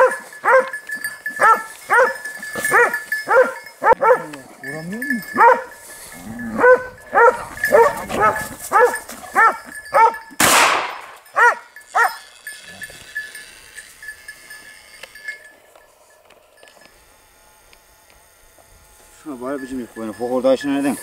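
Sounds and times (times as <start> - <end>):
hound barking: 0.0 - 4.5, 5.1 - 5.8, 6.4 - 10.3, 11.2 - 12.3.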